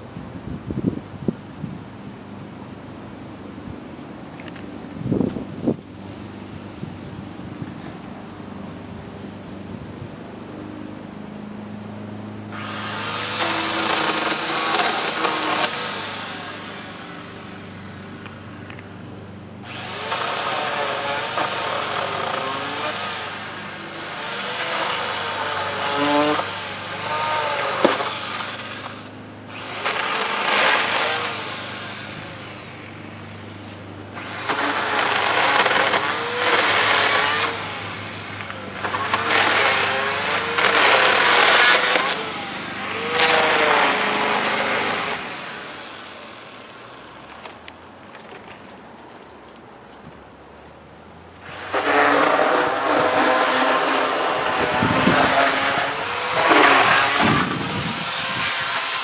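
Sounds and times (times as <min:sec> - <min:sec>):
chainsaw cutting wood: 0:12.4 - 0:48.6, 0:51.4 - 0:59.0.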